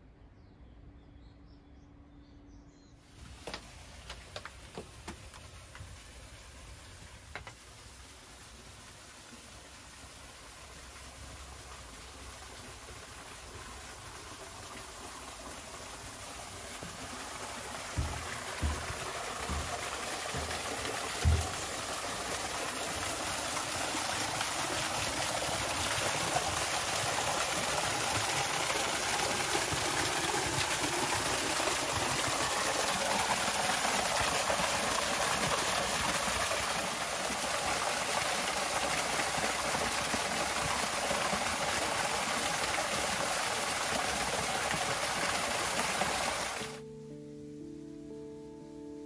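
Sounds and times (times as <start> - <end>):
waterfall splashing into pool: 3.2 - 46.8
thump: 18.0 - 19.8, 21.2 - 21.6.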